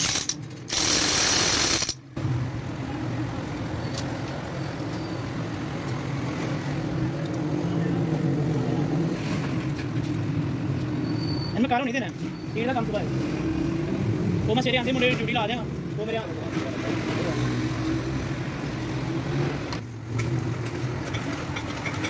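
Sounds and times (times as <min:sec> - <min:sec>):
pneumatic impact wrench: 0:00.0 - 0:02.0.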